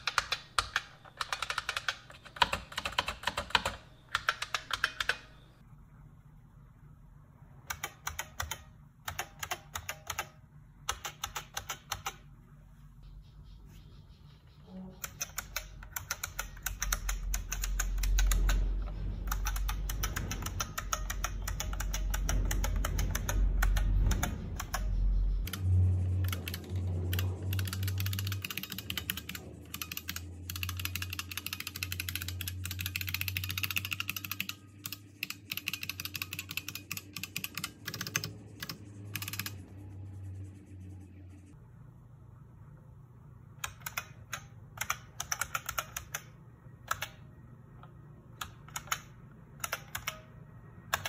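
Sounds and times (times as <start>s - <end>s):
keyboard keys clicking: 0.0s - 5.3s, 7.7s - 12.2s, 14.9s - 39.6s, 43.6s - 47.2s, 48.4s - 50.3s.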